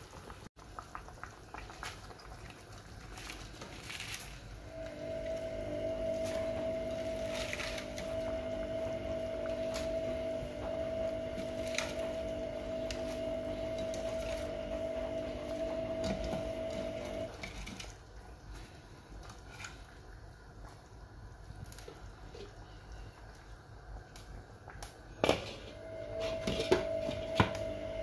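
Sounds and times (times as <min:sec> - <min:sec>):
steady mechanical hum: 0:02.5 - 0:28.0
cabbage leaves rustling into pot: 0:02.6 - 0:05.4.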